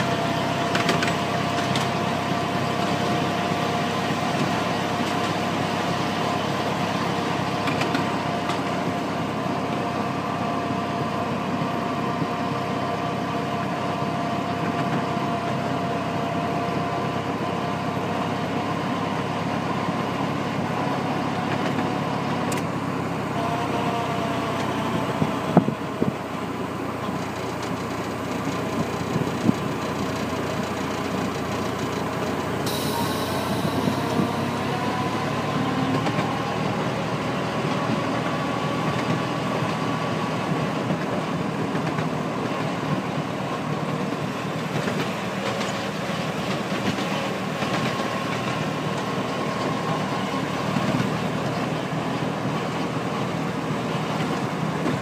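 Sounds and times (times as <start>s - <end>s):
wheels rumbling on rail: 0.0s - 55.0s
faint drifting whine: 23.3s - 37.5s.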